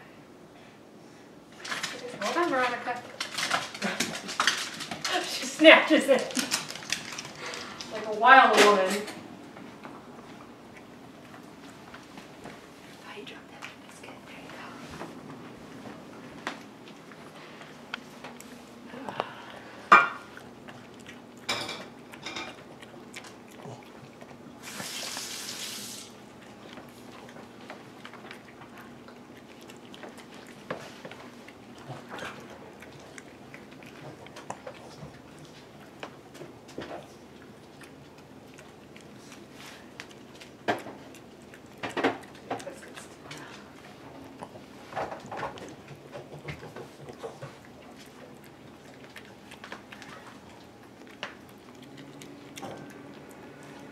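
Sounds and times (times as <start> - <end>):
dog crunching biscuit: 1.6 - 12.9, 19.7 - 53.9
dishes and cutlery clinking: 21.5 - 22.6.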